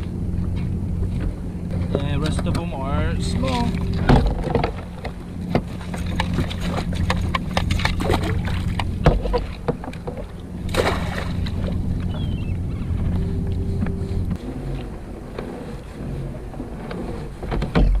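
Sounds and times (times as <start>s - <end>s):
steady low hum: 0.0s - 18.0s
splash of water: 6.1s - 9.4s, 10.7s - 11.7s.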